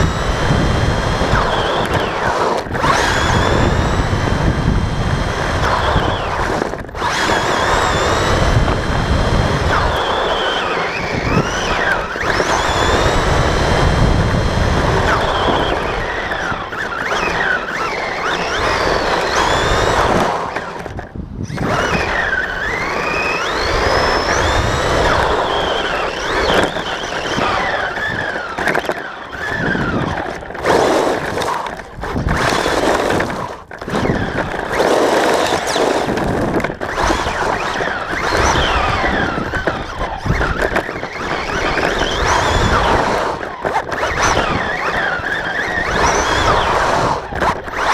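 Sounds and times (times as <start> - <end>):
electric motor whine: 0.0 - 47.9.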